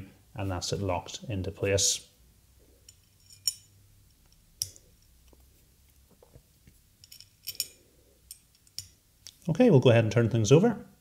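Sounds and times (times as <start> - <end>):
metal screws clicking: 7.0 - 9.0.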